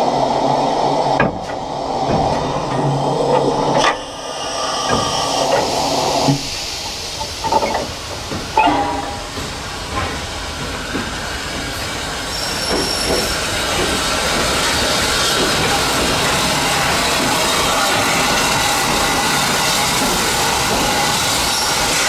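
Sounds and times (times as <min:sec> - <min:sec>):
steam locomotive hissing: 0:00.0 - 0:22.0
metal knocks and clanks: 0:04.9 - 0:11.1.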